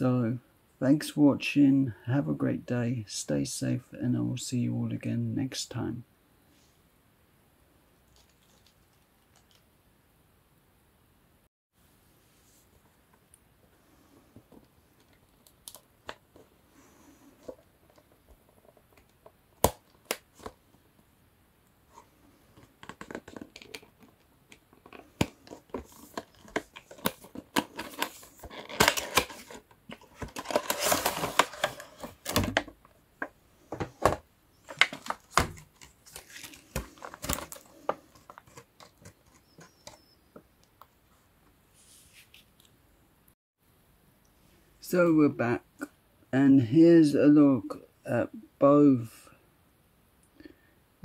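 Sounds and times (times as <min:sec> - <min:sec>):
cardboard and plastic tearing: 0:24.8 - 0:32.8, 0:34.0 - 0:40.0.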